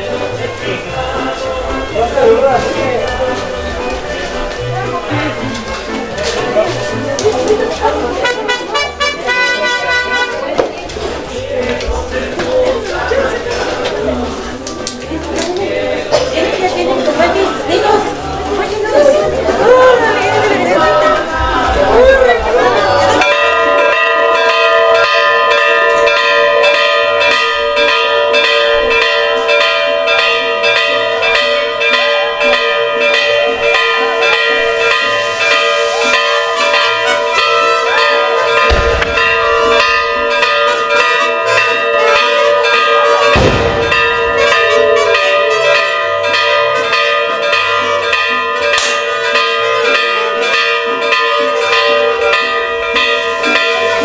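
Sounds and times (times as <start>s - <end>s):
bells ringing: 0.0s - 54.0s
deep booms: 38.7s - 40.4s, 43.3s - 45.0s.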